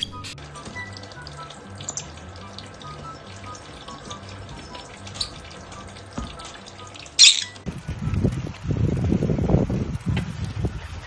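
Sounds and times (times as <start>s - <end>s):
light background music: 0.0s - 8.7s
thin stream of running water: 0.4s - 11.0s.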